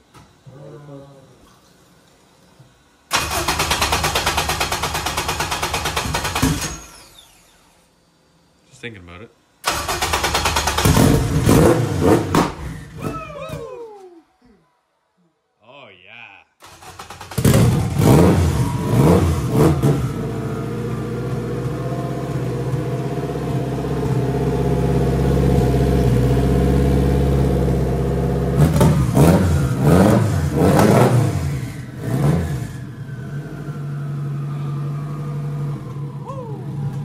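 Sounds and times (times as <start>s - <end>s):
turbocharged car engine revving: 10.1s - 13.0s, 16.9s - 36.2s.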